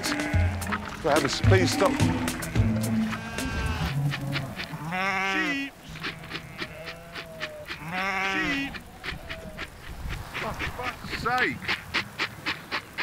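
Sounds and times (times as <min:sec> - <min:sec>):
sheep bleating: 0:00.0 - 0:08.9.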